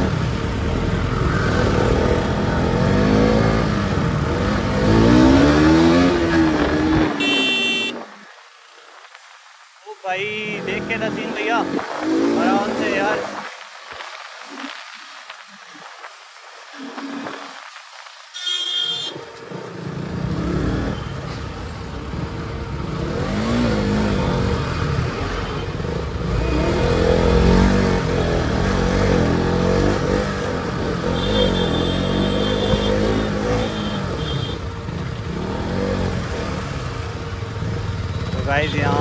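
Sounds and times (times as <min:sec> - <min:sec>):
motorcycle engine revving: 0:00.0 - 0:08.0, 0:22.0 - 0:39.0.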